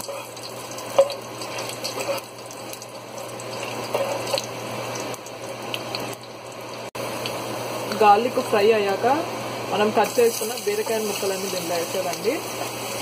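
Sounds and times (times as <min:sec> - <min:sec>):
garlic frying in oil: 0:00.0 - 0:13.0
vent fan running: 0:00.0 - 0:13.0.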